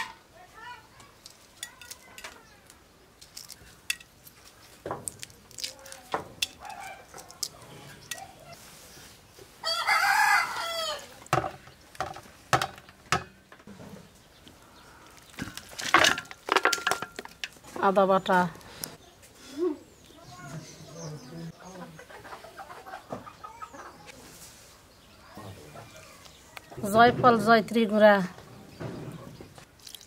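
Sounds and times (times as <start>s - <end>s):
rooster crowing: 9.6s - 11.2s.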